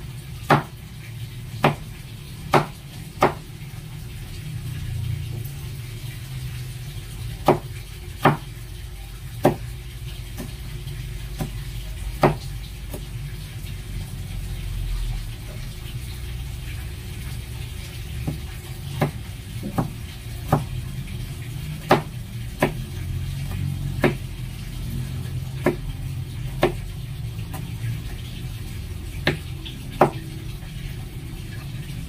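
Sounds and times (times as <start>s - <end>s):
knife chopping on cutting board: 0.5s - 0.7s, 1.6s - 1.8s, 2.5s - 3.4s, 7.4s - 8.5s, 9.4s - 9.7s, 12.2s - 13.1s, 18.2s - 20.7s, 21.8s - 22.8s, 24.0s - 24.3s.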